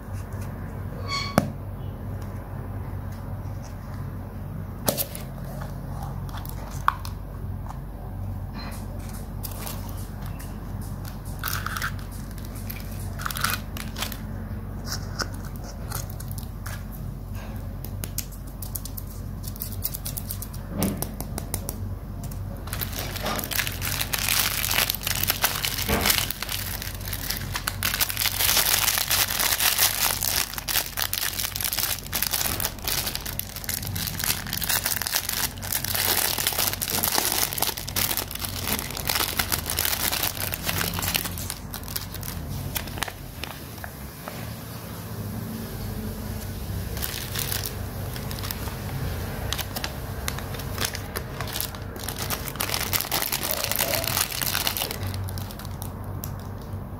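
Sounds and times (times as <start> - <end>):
low steady hum: 0.0 - 56.9
plastic wrapping crinkling: 8.6 - 20.7, 22.2 - 44.7, 46.3 - 56.9.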